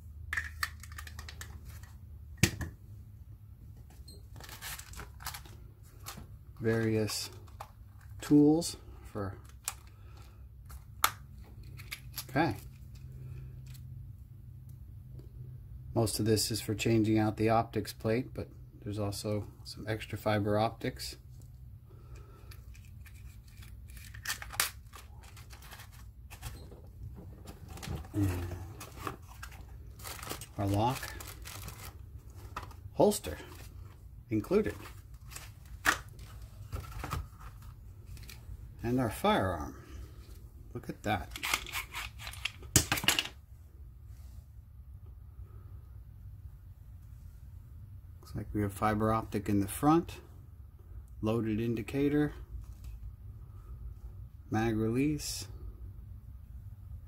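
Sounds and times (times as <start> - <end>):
pistol magazine clicks and rattles: 0.3 - 1.6.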